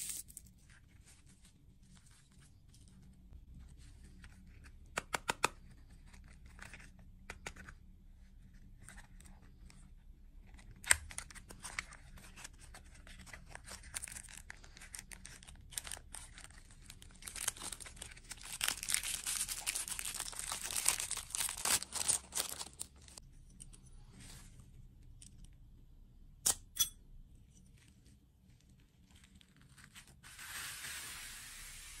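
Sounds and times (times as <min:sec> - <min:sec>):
plastic wrapper crinkling: 0:13.5 - 0:23.2.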